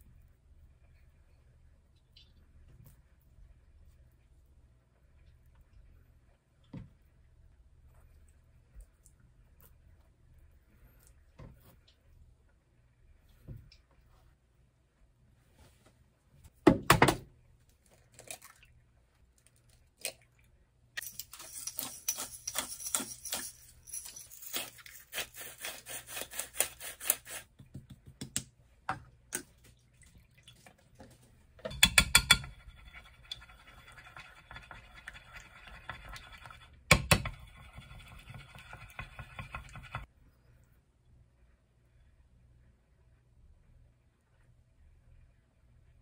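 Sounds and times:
salt grinder twisting: 21.0s - 27.4s
chopsticks beating eggs in dish: 21.0s - 27.7s, 31.7s - 40.1s.

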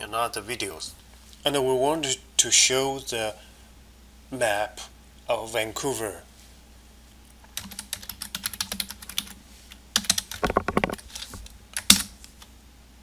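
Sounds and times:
keyboard typing: 7.6s - 9.4s, 10.0s - 12.2s.

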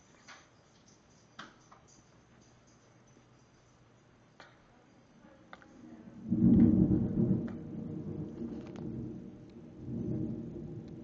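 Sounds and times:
thunder rumbling: 6.1s - 11.0s.

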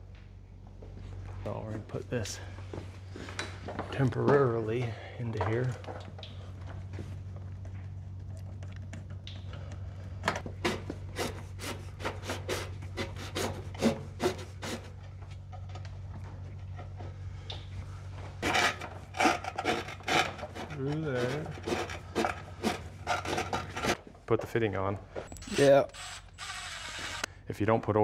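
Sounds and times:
steady low hum: 0.0s - 28.0s
rubber hose scraping on metal: 18.4s - 24.0s.

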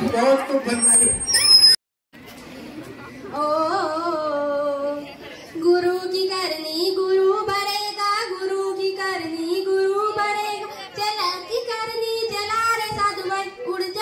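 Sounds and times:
woman singing unaccompanied: 3.4s - 5.0s, 5.6s - 14.0s.

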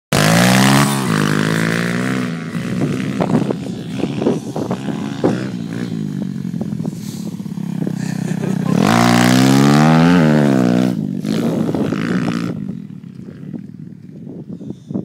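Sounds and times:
motorbike engine revving: 0.1s - 14.2s.

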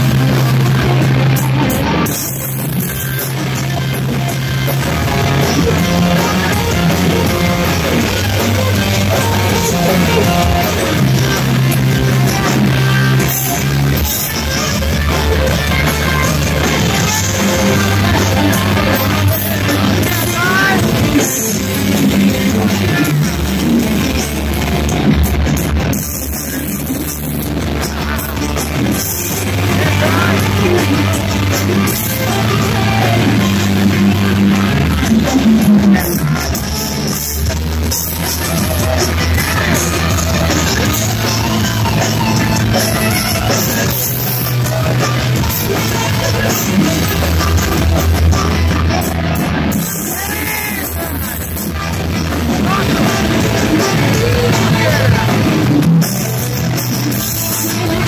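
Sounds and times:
electric guitar: 0.0s - 58.0s
rock band playing: 0.0s - 58.0s
shouted vocals: 15.1s - 21.4s, 29.4s - 31.0s, 48.2s - 51.4s.

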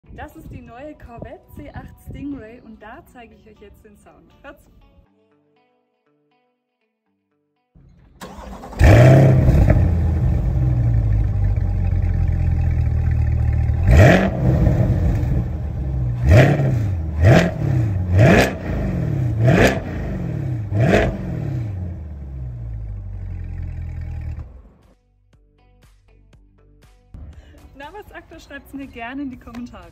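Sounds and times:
car engine starting: 8.0s - 24.8s
car engine idling and revving: 8.2s - 24.8s.

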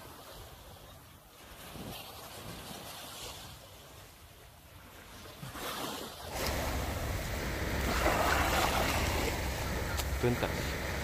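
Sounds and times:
sea waves washing on shore: 0.0s - 11.0s
wind rumbling on microphone: 6.3s - 11.0s.

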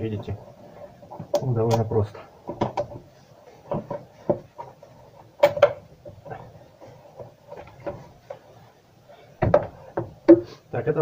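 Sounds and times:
plastic pipe knocking: 9.4s - 10.5s.

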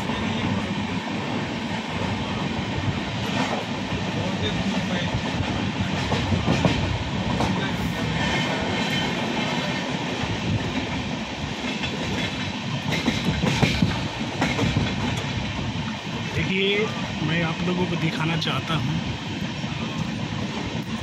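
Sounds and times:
train rumbling and rattling: 0.0s - 21.0s
wheels clacking over rail joints: 4.5s - 9.9s, 11.6s - 15.5s.

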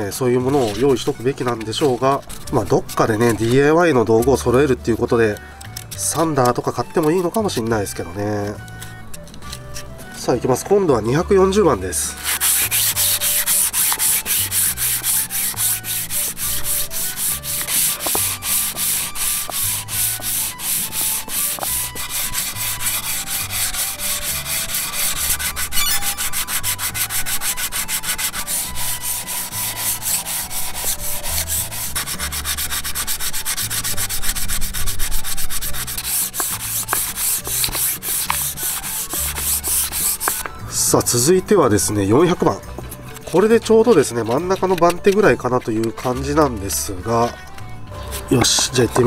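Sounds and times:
sandpaper scraping wood: 0.4s - 4.3s, 12.0s - 41.3s, 43.2s - 49.0s.

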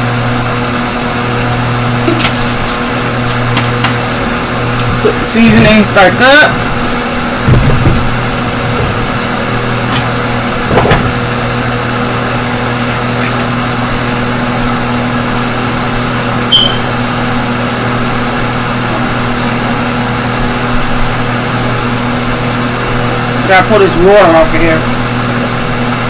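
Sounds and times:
range-hood fan humming: 0.0s - 26.0s
short high chirp: 16.5s - 16.9s.

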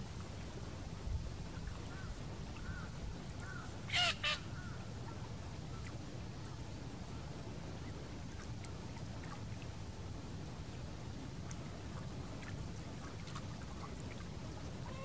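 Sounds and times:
low background rumble: 0.0s - 15.0s
waterbirds calling: 1.4s - 9.7s, 11.5s - 15.0s.

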